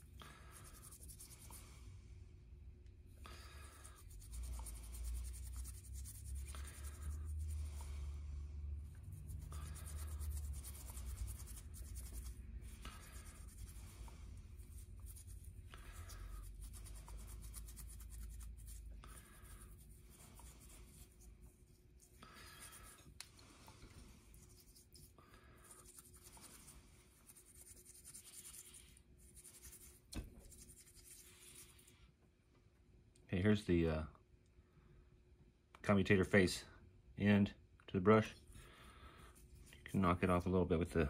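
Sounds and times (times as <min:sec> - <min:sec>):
scouring pad rubbing motor brush: 0:08.8 - 0:18.8.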